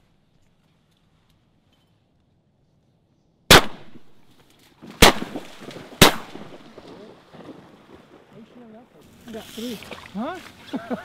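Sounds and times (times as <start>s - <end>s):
shotgun shots with echo: 3.5s - 4.2s, 5.0s - 7.0s.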